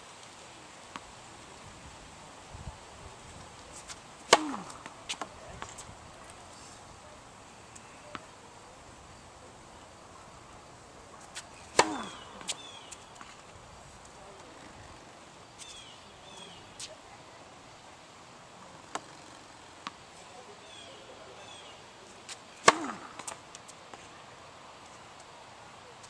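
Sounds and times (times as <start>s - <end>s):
tennis racket hitting ball: 3.8s - 5.8s, 11.3s - 13.5s, 22.6s - 23.5s
ball bouncing on hard court: 4.3s - 5.8s, 11.8s - 12.6s, 22.7s - 23.4s.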